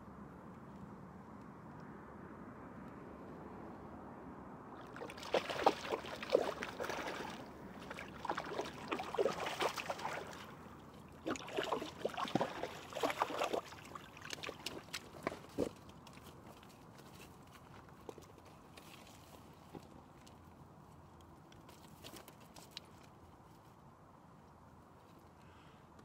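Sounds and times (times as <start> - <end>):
fish splashing at water surface: 4.8 - 15.7.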